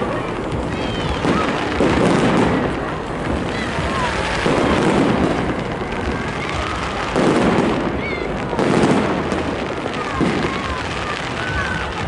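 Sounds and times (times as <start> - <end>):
fireworks bursting: 0.0 - 12.0.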